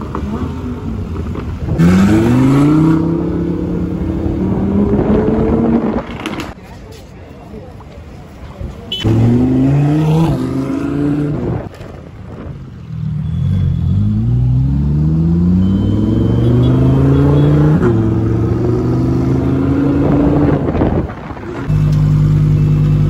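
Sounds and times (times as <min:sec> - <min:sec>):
sports car engine revving: 0:01.8 - 0:06.0.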